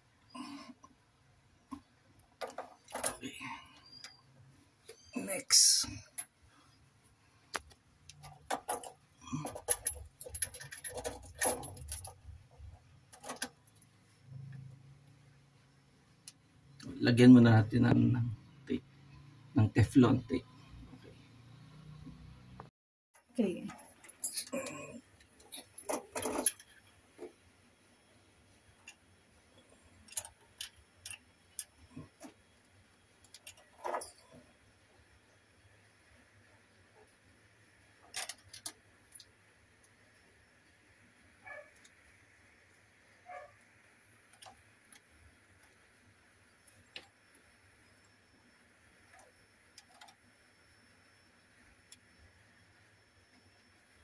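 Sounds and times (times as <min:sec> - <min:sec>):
metal fittings clinking: 0:08.1 - 0:12.3, 0:25.4 - 0:26.8.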